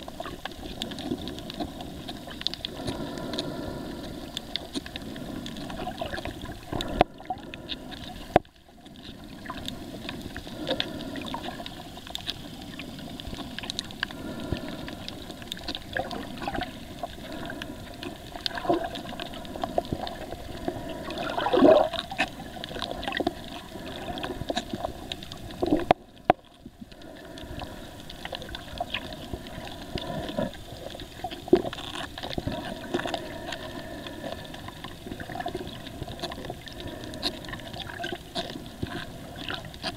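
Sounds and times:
small clicks and crackles: 0:00.0 - 0:39.9
underwater water wash: 0:00.0 - 0:39.9
water gurgling surge: 0:14.4 - 0:25.9.

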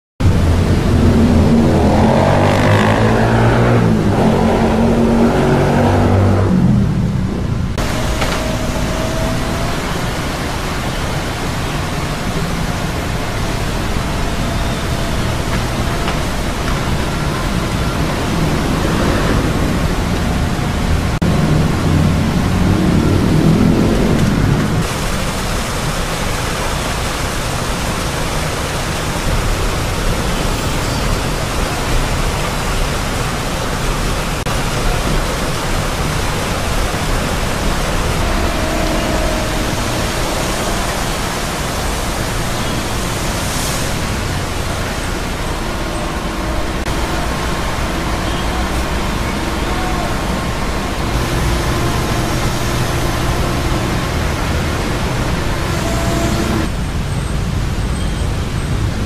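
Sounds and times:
deep rumble: 0:00.2 - 0:10.5
floodwater rushing: 0:00.2 - 0:59.0.

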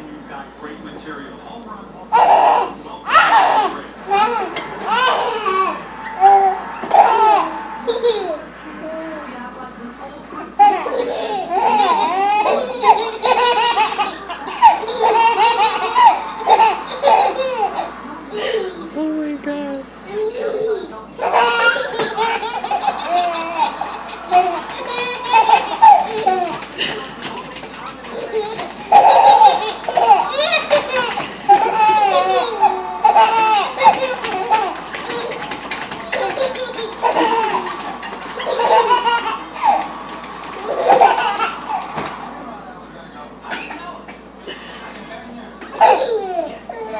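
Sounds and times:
babies belly-laughing: 0:10.6 - 0:18.6, 0:20.1 - 0:42.0.

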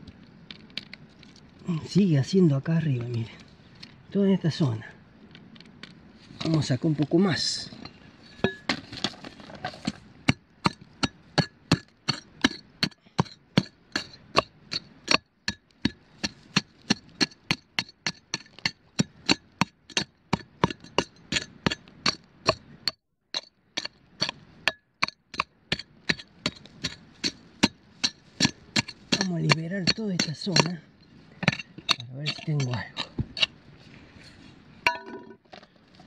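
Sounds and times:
metal tool chopping stony ground: 0:08.4 - 0:33.5, 0:34.9 - 0:35.4.

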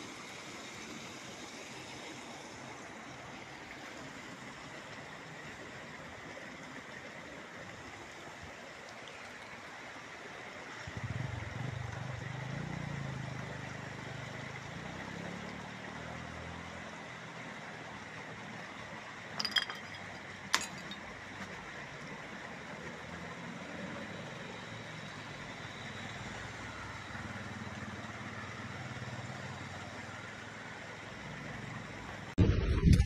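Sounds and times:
steady outdoor hiss: 0:00.0 - 0:33.0
sharp metal clinks: 0:19.4 - 0:21.0.

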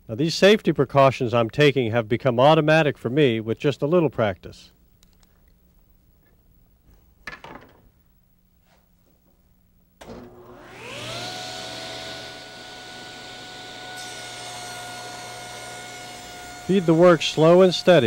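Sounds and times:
table saw motor whine: 0:10.0 - 0:18.0.

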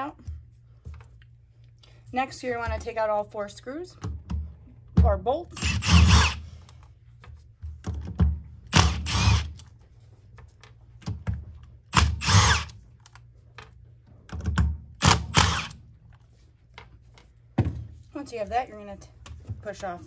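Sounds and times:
cordless power driver running: 0:05.6 - 0:06.4, 0:08.7 - 0:09.6, 0:11.9 - 0:12.8, 0:15.0 - 0:15.8.

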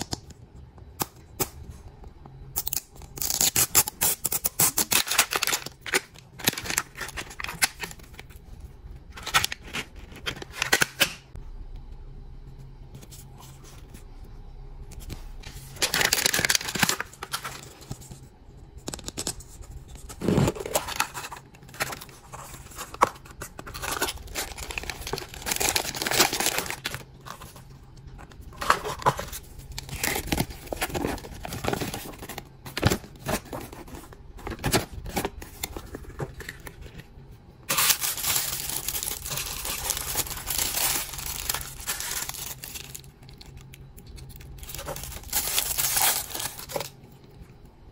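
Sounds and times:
paper and plastic wrapping crinkling: 0:04.7 - 0:08.3, 0:15.4 - 0:18.2, 0:20.0 - 0:47.0.

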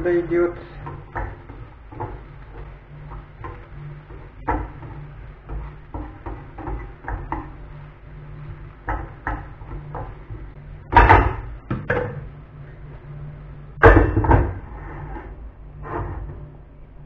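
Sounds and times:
wooden spatula scraping frying pan: 0:00.0 - 0:10.6, 0:14.5 - 0:16.4
low hum: 0:00.0 - 0:17.0.

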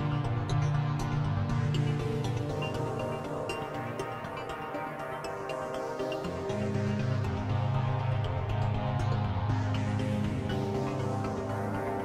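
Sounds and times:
background music sustained notes: 0:00.0 - 0:12.0.

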